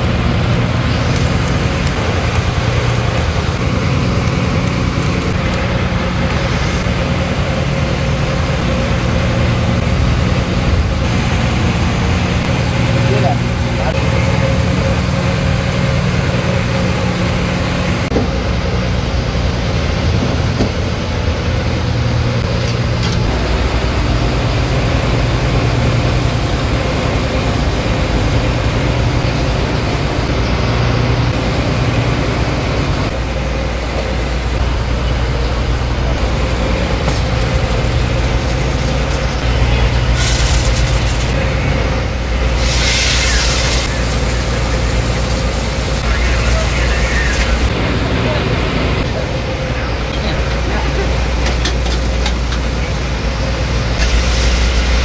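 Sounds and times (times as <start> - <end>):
boat engine droning: 0.0 - 55.0
onions sizzling in hot oil: 42.5 - 46.0.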